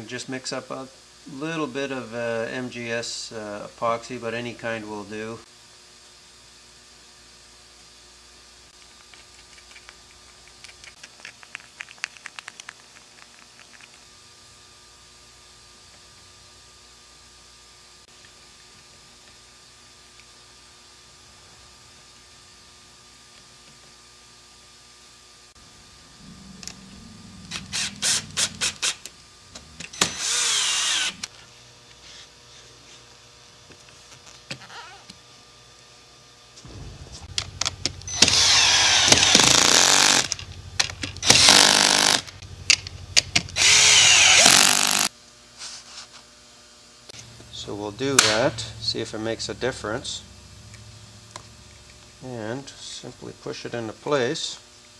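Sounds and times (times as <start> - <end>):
hissy whir with falling tone: 25.6 - 31.4.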